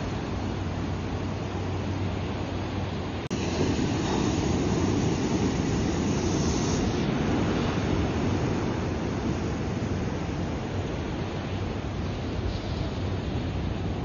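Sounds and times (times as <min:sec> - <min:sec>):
surf washing onto rocky shore: 0:03.3 - 0:11.6.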